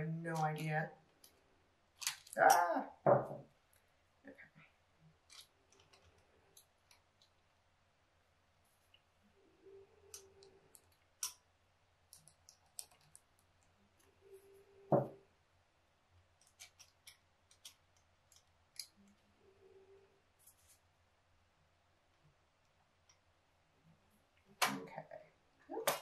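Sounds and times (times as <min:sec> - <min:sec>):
small metal parts clicking: 0:02.0 - 0:02.7.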